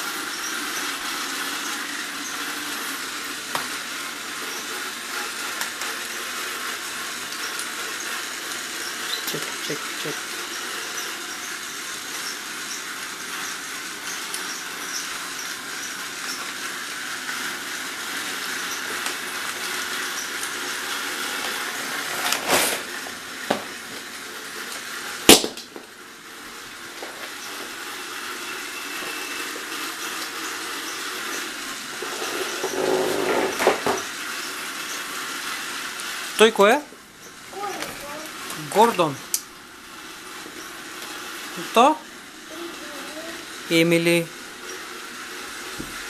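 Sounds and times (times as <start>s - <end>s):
clicks and knocks of toy trains: 3.5s - 3.8s, 5.2s - 6.0s, 13.4s - 15.2s, 18.6s - 22.9s.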